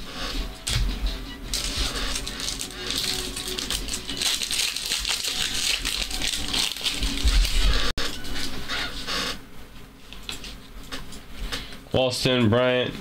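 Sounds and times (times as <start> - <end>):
foil wrappers crinkling: 1.5 - 7.9.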